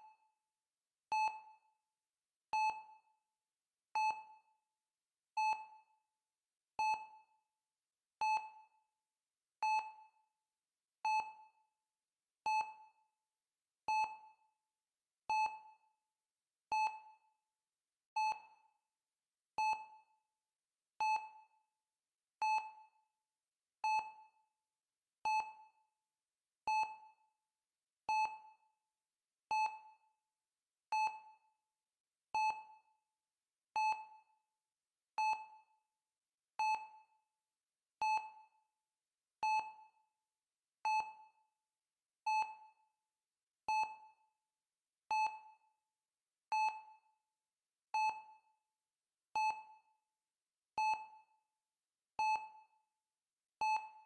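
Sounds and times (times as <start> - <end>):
heart rate monitor beeping: 32.4 - 32.6, 33.8 - 34.3, 38.0 - 38.3, 53.6 - 54.0.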